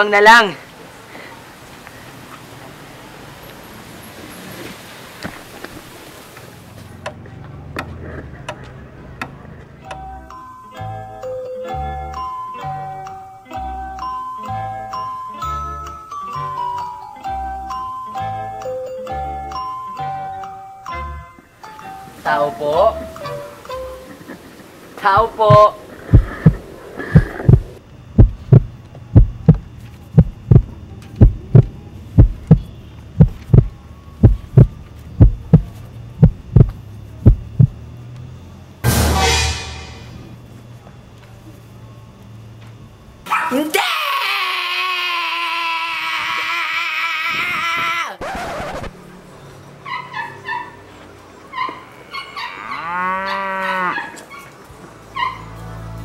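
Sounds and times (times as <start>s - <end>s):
low hum: 23.0s - 38.0s, 38.8s - 40.6s
heartbeat: 25.2s - 37.8s
loud burst of noise: 38.8s - 40.4s
low mooing call: 52.0s - 54.2s, 55.1s - 56.0s.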